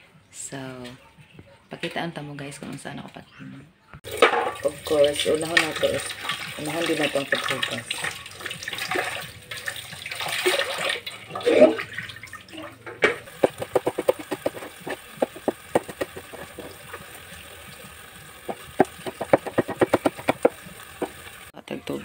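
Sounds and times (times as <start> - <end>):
tap water running: 4.0 - 21.6
knife chopping on wooden board: 13.3 - 16.8, 18.5 - 21.2
hands rubbing beans: 13.3 - 17.1, 18.5 - 21.2.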